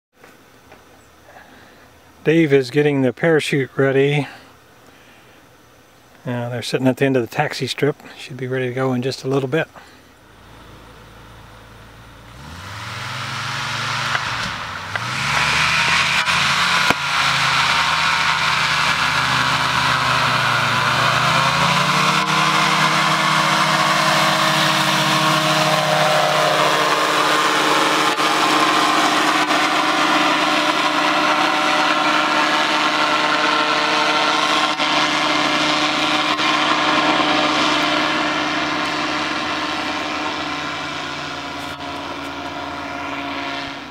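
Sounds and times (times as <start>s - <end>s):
propeller engine at full power: 9.8s - 43.9s.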